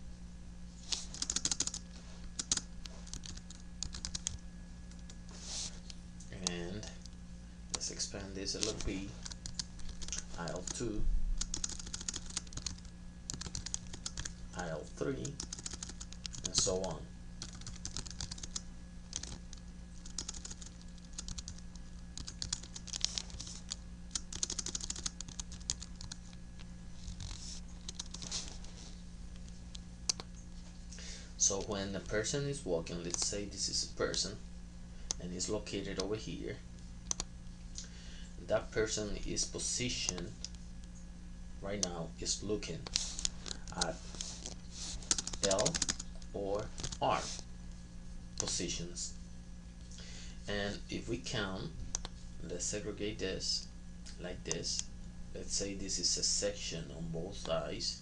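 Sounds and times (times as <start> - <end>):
steady low hum: 0.0 - 58.0
computer keyboard typing: 1.1 - 1.8, 2.4 - 4.4, 8.6 - 10.8, 11.4 - 14.4, 15.2 - 26.4, 27.0 - 28.3, 30.1 - 30.3, 33.1 - 33.3, 37.0 - 37.3, 42.9 - 44.3, 45.0 - 46.2, 46.8 - 47.0.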